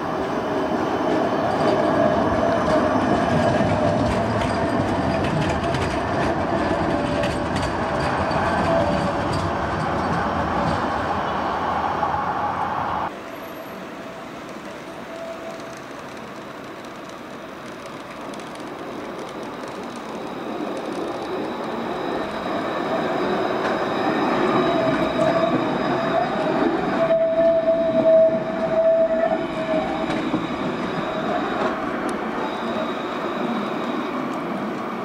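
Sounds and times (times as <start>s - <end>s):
tram passing: 0.0s - 35.0s
wheel squeal: 21.1s - 34.3s.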